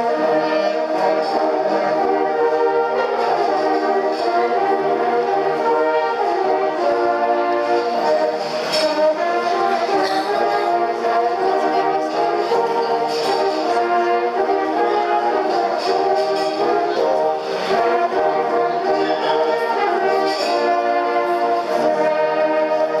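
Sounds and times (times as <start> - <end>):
brass horns playing sustained chords: 0.0 - 23.0.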